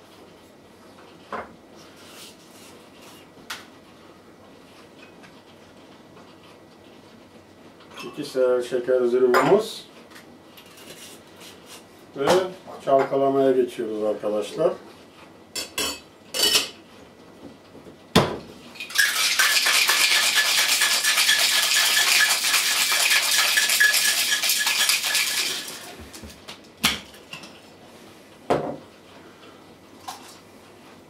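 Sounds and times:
ice rattling in shaker: 0:18.7 - 0:26.3
glass and tin clinking: 0:18.8 - 0:25.9.

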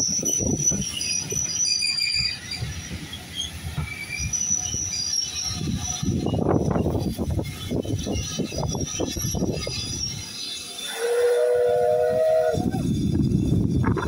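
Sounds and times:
railway carriages rolling: 0:00.0 - 0:14.0
wheels squealing: 0:00.0 - 0:14.0
wind on microphone: 0:05.4 - 0:10.2, 0:12.0 - 0:14.0.

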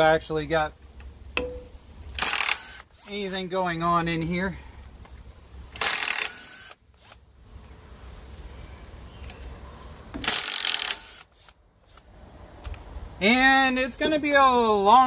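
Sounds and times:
cordless driver spinning bolts: 0:02.1 - 0:03.4, 0:05.7 - 0:07.2, 0:10.2 - 0:12.0.

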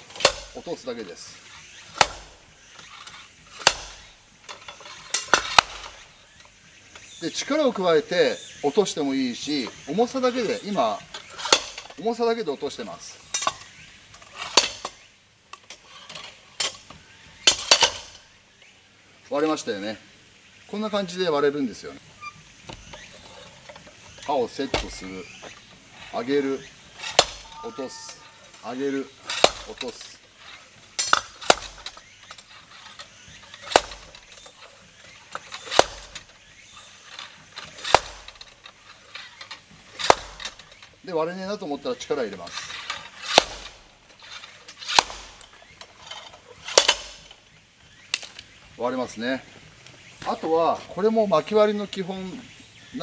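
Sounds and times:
metallic clanks of log splitter: 0:00.0 - 0:07.5, 0:10.2 - 0:12.0, 0:13.0 - 0:18.3, 0:22.6 - 0:25.7, 0:26.6 - 0:27.6, 0:28.5 - 0:41.0, 0:42.1 - 0:47.4
metal weight clanking on blade: 0:01.9 - 0:05.9, 0:11.2 - 0:12.0, 0:27.0 - 0:34.7, 0:35.3 - 0:38.5.

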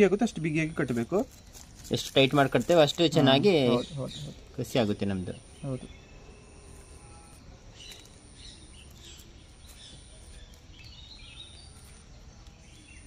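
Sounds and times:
bird chirps: 0:03.6 - 0:13.0
high insect buzz: 0:05.3 - 0:12.1.

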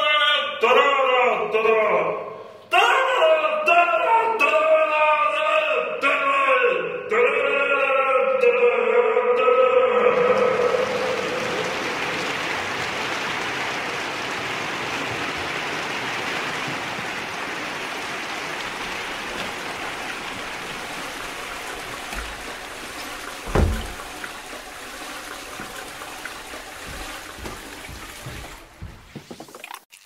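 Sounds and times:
loud low thump: 0:23.5 - 0:24.2.

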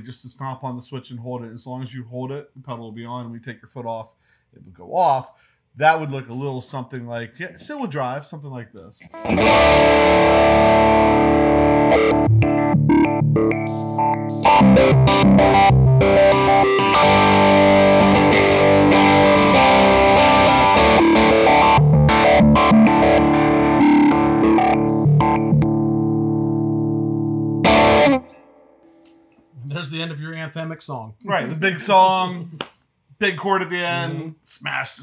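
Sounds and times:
overdriven electric guitar chords: 0:09.1 - 0:29.2.

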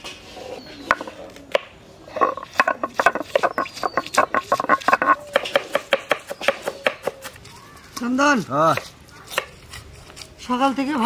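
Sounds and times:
knives chopping on wooden boards: 0:02.5 - 0:07.4, 0:08.7 - 0:09.6.

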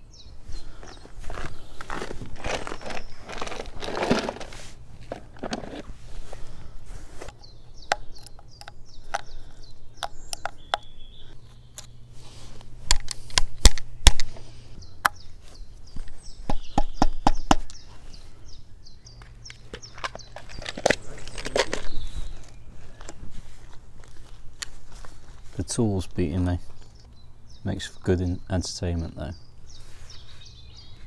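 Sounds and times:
small bird chirping: 0:07.3 - 0:12.1, 0:14.8 - 0:23.3, 0:25.2 - 0:31.0.

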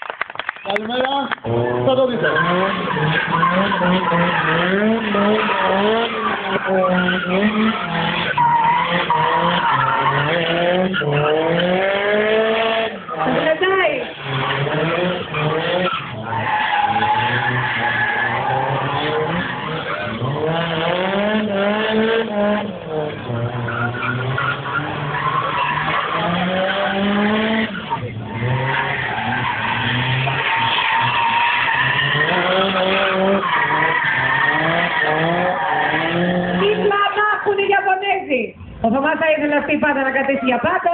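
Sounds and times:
tyres squealing: 0:00.6 - 0:20.6, 0:22.8 - 0:37.8, 0:39.5 - 0:40.9
car engine revving: 0:00.6 - 0:37.8.

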